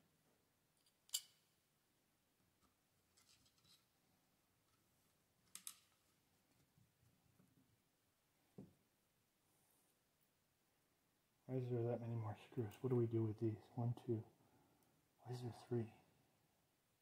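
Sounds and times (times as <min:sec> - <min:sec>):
small parts clicking: 0:00.8 - 0:01.4, 0:05.4 - 0:06.0.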